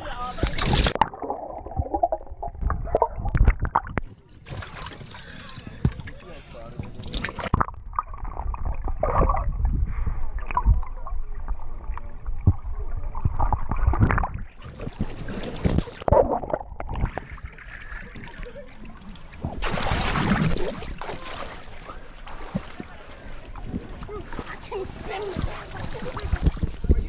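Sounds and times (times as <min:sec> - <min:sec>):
water sloshing and gurgling: 0:00.0 - 0:27.0
loud splashing: 0:19.4 - 0:22.8.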